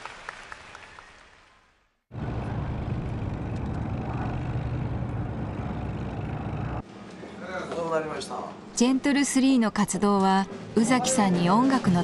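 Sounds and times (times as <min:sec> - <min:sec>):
low rumble with hum: 0:02.1 - 0:06.8.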